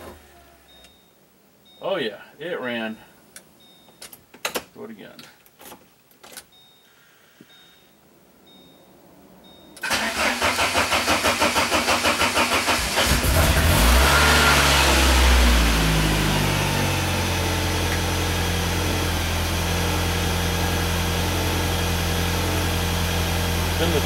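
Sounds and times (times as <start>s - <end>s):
car engine starting and idling: 0.0s - 1.0s, 9.8s - 24.0s.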